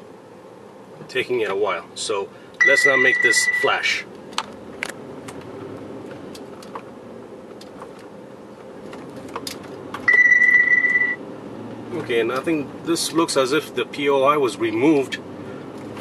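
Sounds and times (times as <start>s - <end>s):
car road and engine noise: 0.0s - 16.0s
loud electronic beep: 2.6s - 3.8s, 10.1s - 11.2s.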